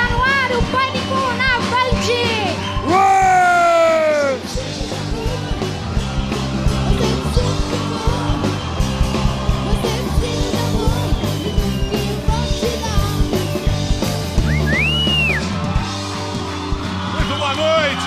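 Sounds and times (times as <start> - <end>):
loud music with strong bass: 2.7 - 17.1.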